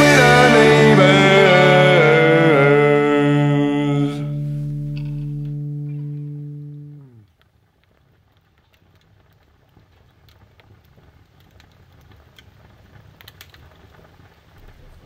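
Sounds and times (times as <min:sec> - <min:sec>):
background music: 0:00.0 - 0:07.1
faint ambient noise: 0:00.0 - 0:07.3.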